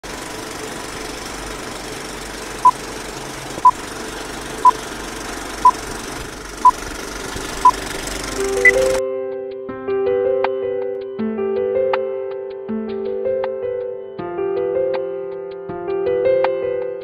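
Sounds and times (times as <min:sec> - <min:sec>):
film projector whirring: 0:00.0 - 0:09.0
short high beeps: 0:08.6 - 0:09.0.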